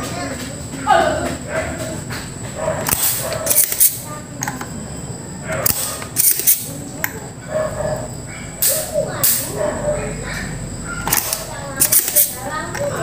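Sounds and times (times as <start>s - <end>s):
desoldering pump snapping: 2.1s - 4.7s, 5.5s - 7.2s, 8.6s - 9.5s, 11.0s - 13.0s.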